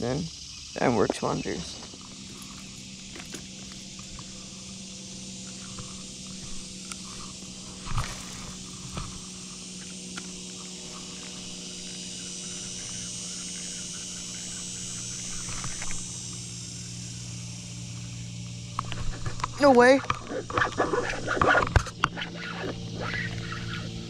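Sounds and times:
high hiss: 0.0 - 24.0
low hum: 0.6 - 24.0
fishing rod and reel clicks: 2.2 - 12.0.

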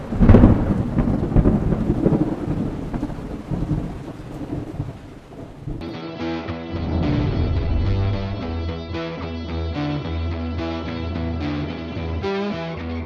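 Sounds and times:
rolling thunder: 0.0 - 5.9, 6.7 - 9.0
rain: 0.0 - 6.0
guitar music: 5.8 - 13.0.

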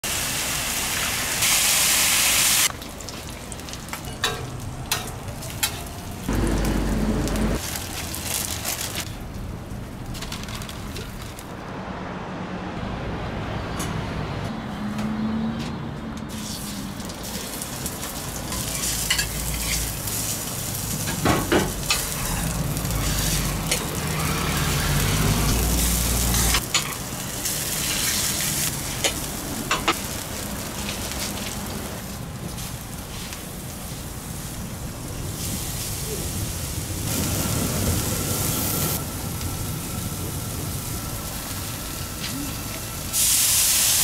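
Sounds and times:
burgers sizzling on a griddle: 0.0 - 4.0, 16.3 - 44.0
metal utensils clacking on griddle: 3.9 - 5.9, 17.0 - 20.2, 21.0 - 24.0, 26.3 - 27.1, 27.8 - 30.2.

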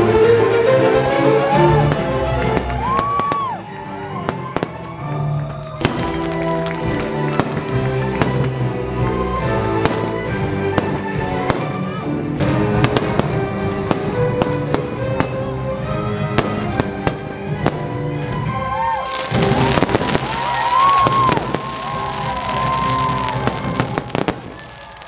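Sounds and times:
music playing: 0.0 - 25.0
fireworks bangs and crackles: 1.8 - 25.0
fireworks whistling: 2.6 - 12.1, 16.2 - 25.0.

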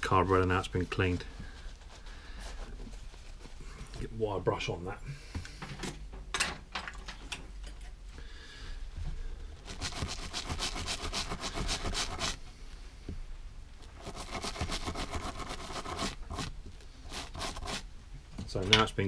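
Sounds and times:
wire brush scrubbing metal: 9.6 - 12.4, 13.9 - 17.9.

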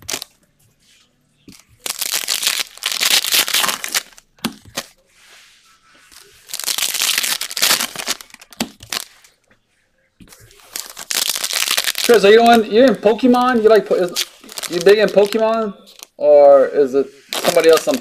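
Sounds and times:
foil wrapper tearing and crinkling: 0.0 - 0.3, 1.8 - 4.9, 6.4 - 9.2, 10.5 - 16.1, 17.3 - 18.0.

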